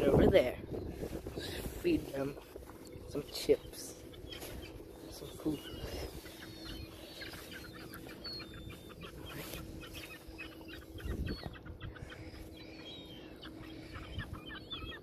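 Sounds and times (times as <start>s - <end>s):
birds squawking: 0.0s - 15.0s.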